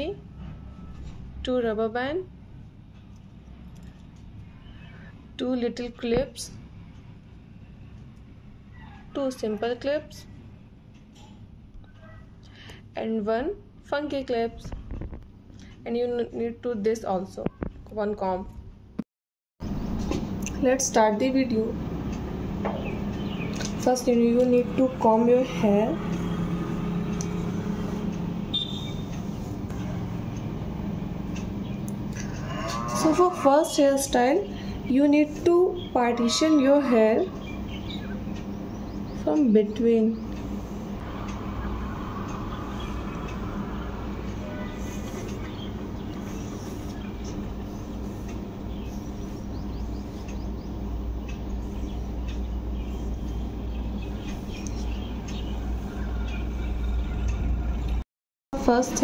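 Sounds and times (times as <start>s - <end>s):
low background rumble: 19.6s - 58.0s
rushing background noise: 19.6s - 58.0s
steady low hum: 19.6s - 58.0s.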